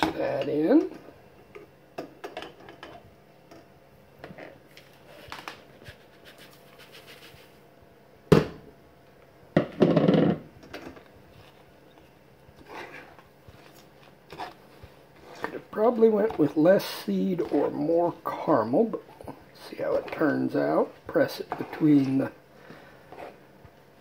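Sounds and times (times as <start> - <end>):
plastic spatula scraping pot: 12.5 - 22.4, 23.0 - 23.4.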